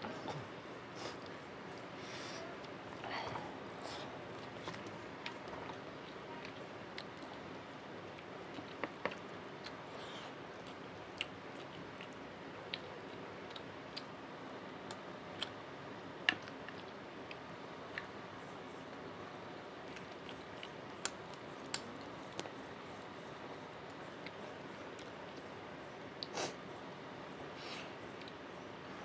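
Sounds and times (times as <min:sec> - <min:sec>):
faint hiss: 0:00.0 - 0:04.3, 0:25.5 - 0:28.8
wet chewing: 0:03.8 - 0:14.1, 0:18.8 - 0:25.6.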